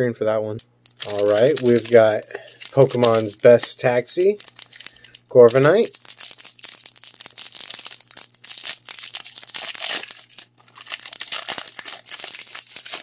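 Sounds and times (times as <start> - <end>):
foil wrapper tearing and crinkling: 0.8 - 13.0.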